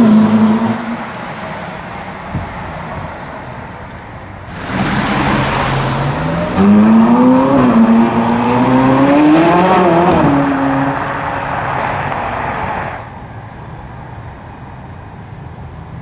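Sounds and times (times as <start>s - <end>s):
sports car accelerating: 4.5s - 13.0s.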